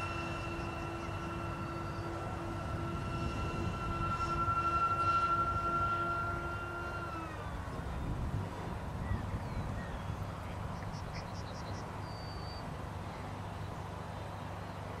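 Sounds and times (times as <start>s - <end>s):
electric ducted fans whining: 0.0s - 15.0s
low rumble and hiss: 0.0s - 15.0s
bird chirping: 9.0s - 14.9s
bird whistle: 11.6s - 12.7s.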